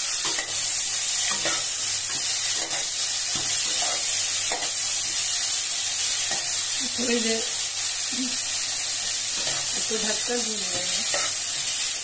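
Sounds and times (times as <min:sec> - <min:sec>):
pumpkin sizzling in hot oil: 0:00.0 - 0:12.0
metal spatula scraping pan: 0:01.2 - 0:04.8, 0:10.7 - 0:11.4.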